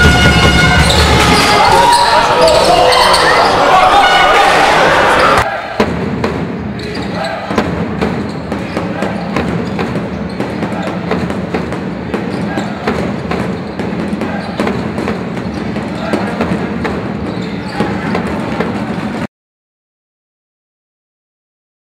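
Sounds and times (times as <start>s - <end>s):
voices of players and spectators: 0.2s - 19.3s
basketball bouncing on hardwood: 7.5s - 19.2s.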